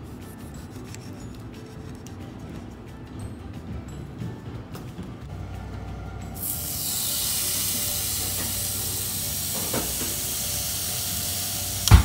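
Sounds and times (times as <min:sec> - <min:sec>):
food sizzling in a pan: 0:06.4 - 0:11.9.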